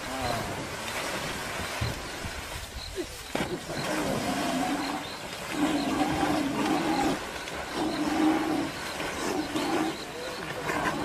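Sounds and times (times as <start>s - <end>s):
animal wavering calls: 3.8s - 11.0s.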